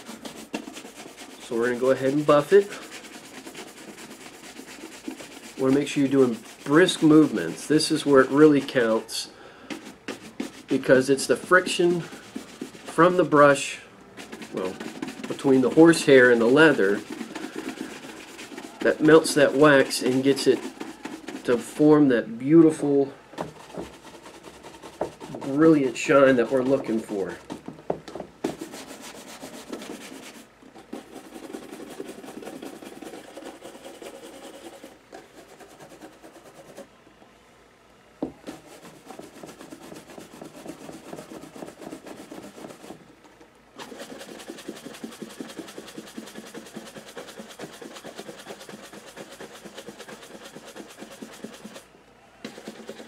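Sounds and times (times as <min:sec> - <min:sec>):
shoe brush buffing leather: 0:00.0 - 0:09.1, 0:09.7 - 0:13.5, 0:14.2 - 0:22.0, 0:22.6 - 0:36.8, 0:38.4 - 0:43.0, 0:43.8 - 0:51.8, 0:52.4 - 0:53.0.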